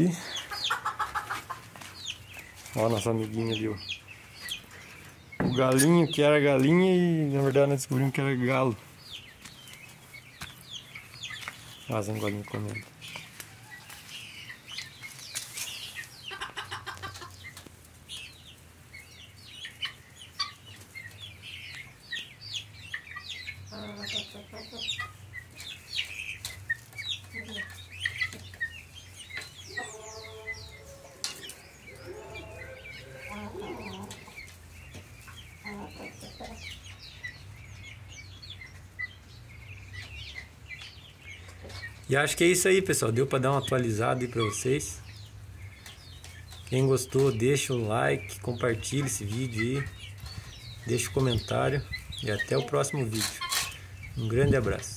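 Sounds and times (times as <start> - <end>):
chickens clucking: 0.0 - 54.9
longer pitched chicken calls: 28.2 - 34.6.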